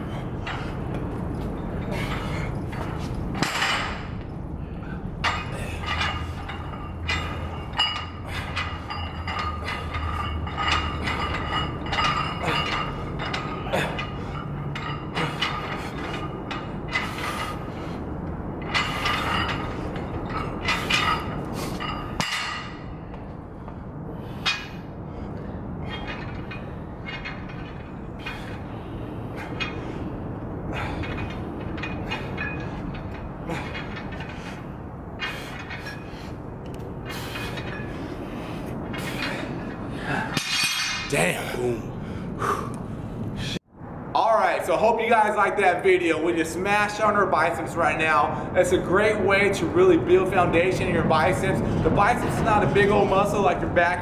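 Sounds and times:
barbell plates clinking and rattling: 0.3 - 4.4, 5.2 - 23.1, 25.8 - 30.1, 30.7 - 41.2.

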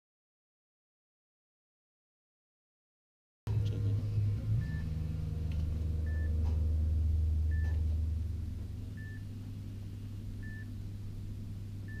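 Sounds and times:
low steady hum: 3.5 - 12.0.

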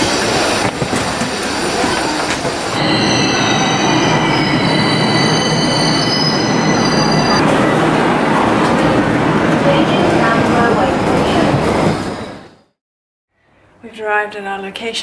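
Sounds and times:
train rushing rumble: 0.0 - 12.7
train brakes squealing: 2.8 - 7.4.

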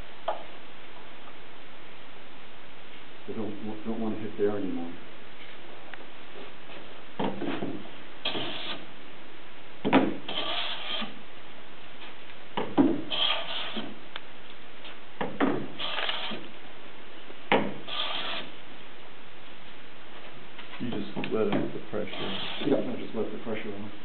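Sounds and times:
hiss of wood shaving cut: 22.1 - 22.9.

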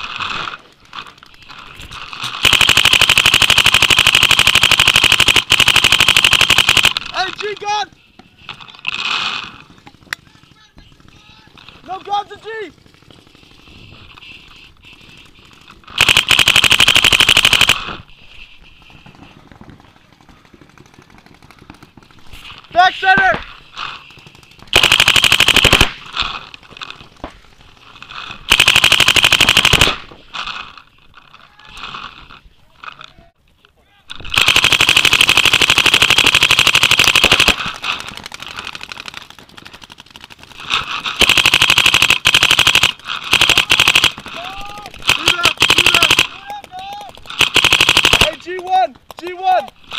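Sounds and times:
paintball marker firing: 34.2 - 49.9.

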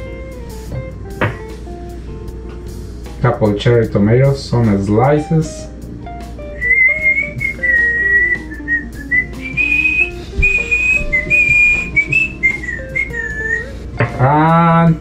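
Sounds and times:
background music with plucked notes: 0.0 - 15.0
man whistling a tune: 6.5 - 13.9.

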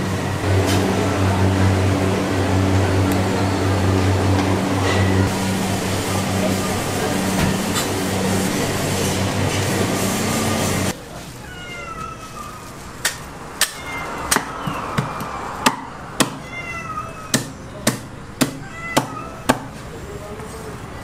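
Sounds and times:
loud rush with low hum: 0.0 - 11.0
cleaver chopping on wooden block: 17.3 - 19.7.

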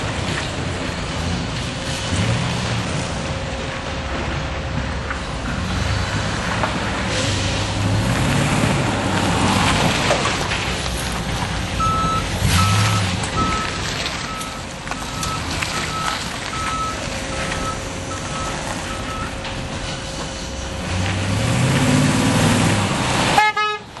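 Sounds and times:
truck engine running: 0.0 - 24.0
reversing alarm beeping: 11.8 - 19.5.

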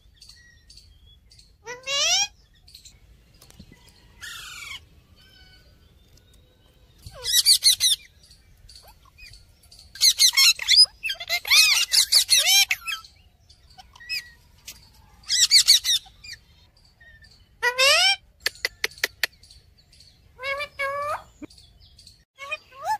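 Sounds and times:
parakeets screeching: 1.6 - 2.4, 4.2 - 5.8, 7.0 - 18.2, 20.4 - 21.4.

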